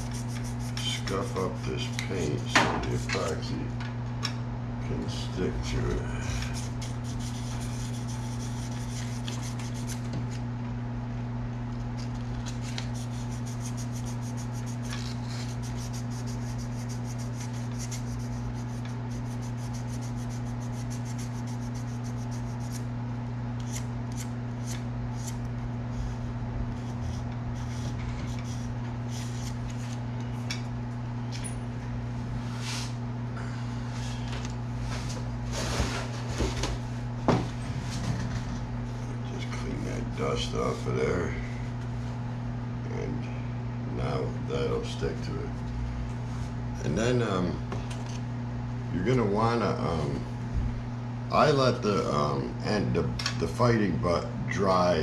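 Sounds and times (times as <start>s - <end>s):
sandpaper rubbing: 0.0s - 2.0s, 6.5s - 10.0s, 12.4s - 22.8s, 26.8s - 29.9s
steady low hum: 0.0s - 55.0s.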